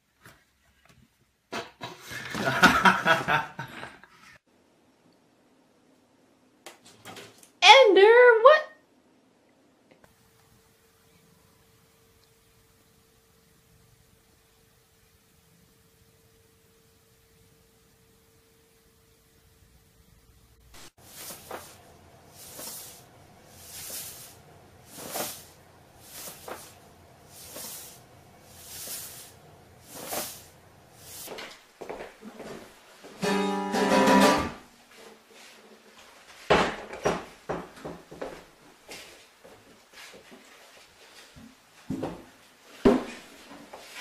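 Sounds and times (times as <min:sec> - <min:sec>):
soft repeating hiss: 0:09.5 - 0:33.2
acoustic guitar chord ringing: 0:33.2 - 0:34.6.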